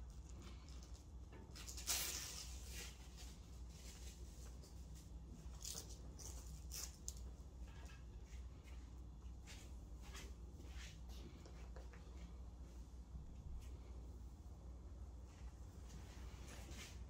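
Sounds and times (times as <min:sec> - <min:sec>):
felt brushing and scratching: 0:01.9 - 0:06.9.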